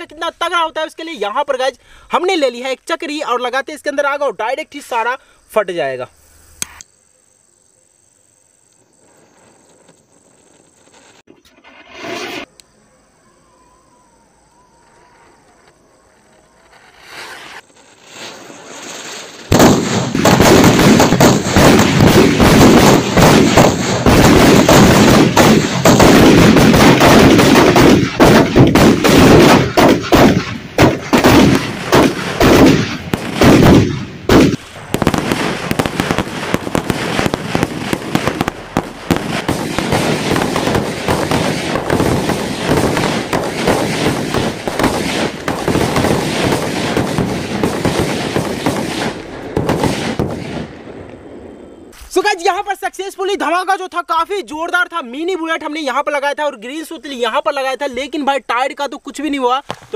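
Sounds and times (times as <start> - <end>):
firecrackers banging and crackling: 8.8 - 12.5, 15.6 - 51.2.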